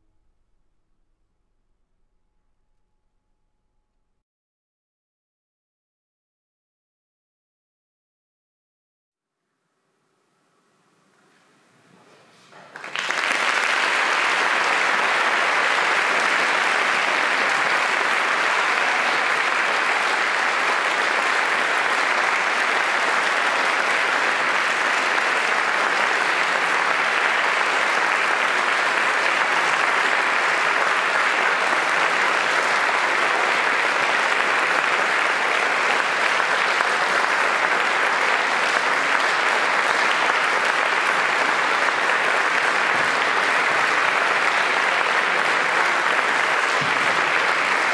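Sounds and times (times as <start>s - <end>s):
audience applauding in a hall: 12.5s - 47.9s.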